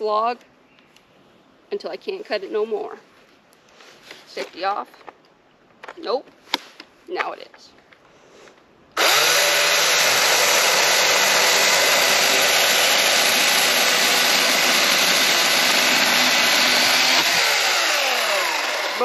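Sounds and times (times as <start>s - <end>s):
chainsaw cutting through log: 9.0s - 19.0s.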